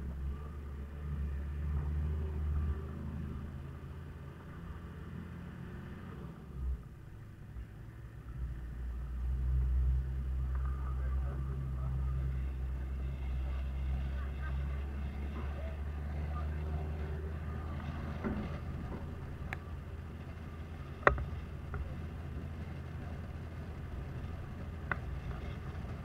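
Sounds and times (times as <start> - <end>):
diesel truck rumbling: 0.0 - 26.0.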